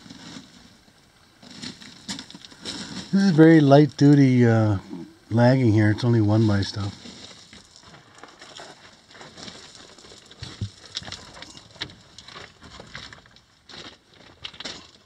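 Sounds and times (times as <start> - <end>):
broken rock crunching underfoot: 7.0 - 15.0.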